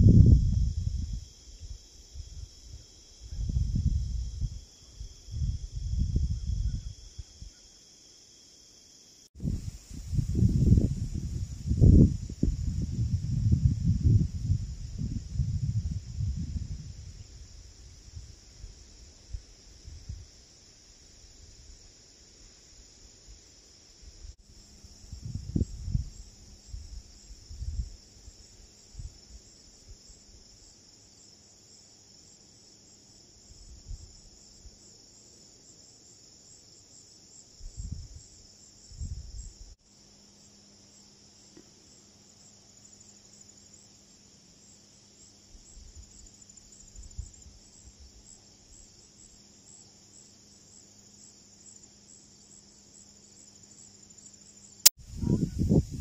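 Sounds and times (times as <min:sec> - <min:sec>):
wind buffeting microphone: 0:00.0 - 0:07.5, 0:09.4 - 0:18.4, 0:24.9 - 0:28.0, 0:37.6 - 0:38.2, 0:38.9 - 0:39.6, 0:55.0 - 0:56.0
insects trilling: 0:00.0 - 0:56.0.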